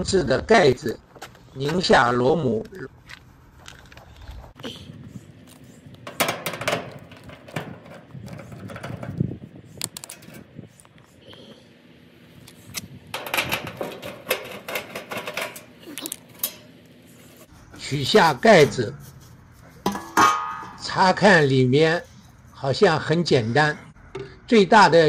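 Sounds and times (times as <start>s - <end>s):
screwdriver on sheet metal: 6.0s - 9.2s, 12.7s - 15.7s.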